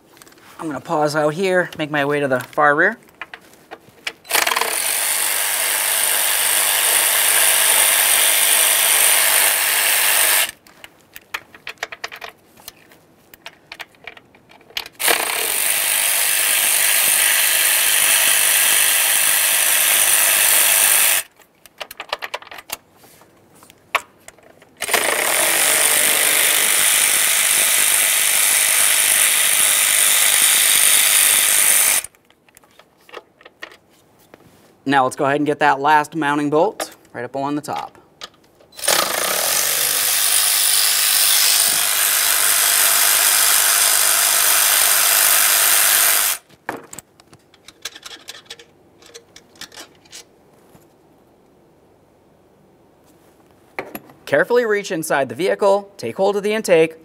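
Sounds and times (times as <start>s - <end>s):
power tool spinning out bolts: 4.3s - 10.6s, 14.9s - 21.3s, 24.8s - 32.1s, 38.8s - 46.4s.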